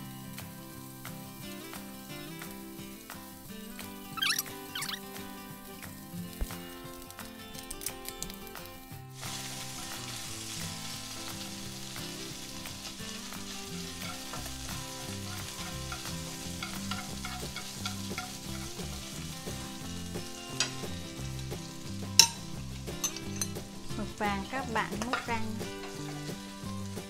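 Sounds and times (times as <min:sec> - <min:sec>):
squid sizzling in hot oil: 0:00.0 - 0:27.0
chopsticks ticking on pan: 0:13.3 - 0:19.8, 0:22.2 - 0:23.6.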